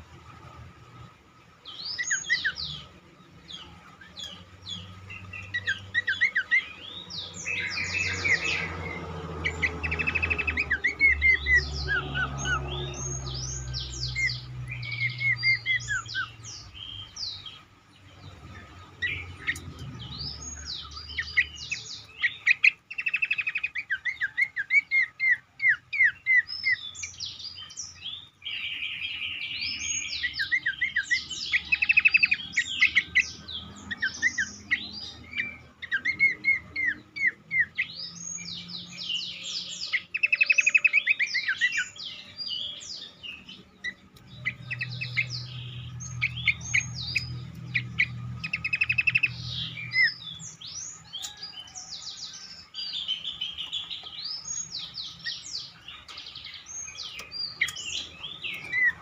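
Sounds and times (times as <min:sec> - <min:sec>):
bird singing varied song: 0:00.0 - 0:59.0.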